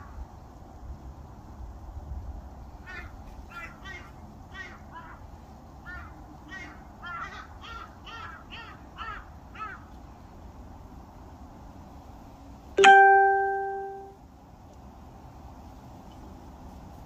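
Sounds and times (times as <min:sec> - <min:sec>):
crow cawing: 0:02.8 - 0:09.9
loud ringing musical note: 0:12.8 - 0:14.2.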